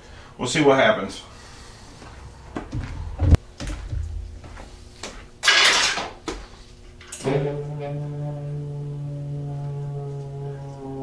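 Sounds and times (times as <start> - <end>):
knocks and clunks: 2.5 - 4.7
background music with held notes: 7.2 - 11.0.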